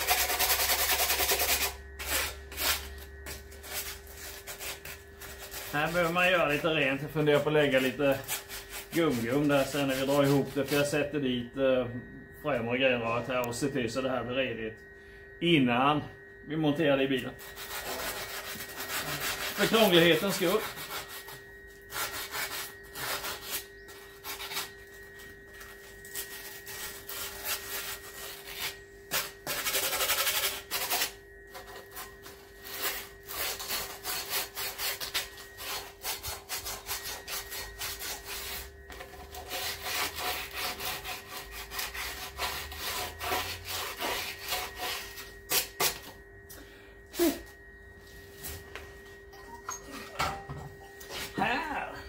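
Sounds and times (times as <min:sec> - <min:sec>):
hand tool scraping metal: 0:00.0 - 0:11.2, 0:17.2 - 0:46.1, 0:49.5 - 0:51.6.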